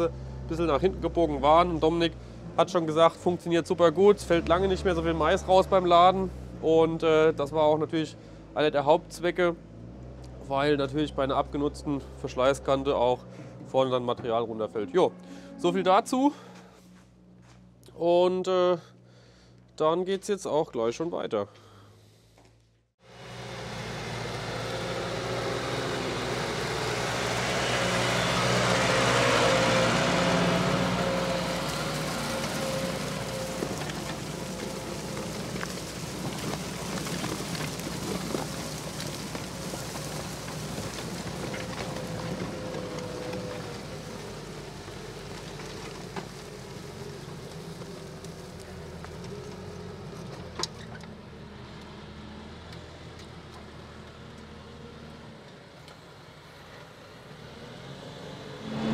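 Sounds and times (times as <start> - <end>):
tractor engine running: 23.0 - 57.3.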